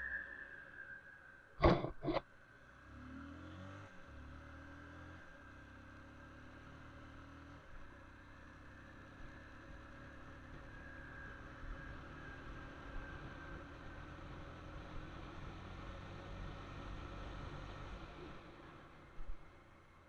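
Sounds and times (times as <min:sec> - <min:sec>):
sharp knocks: 0:01.6 - 0:02.2
faint vehicle engine running: 0:01.6 - 0:20.0.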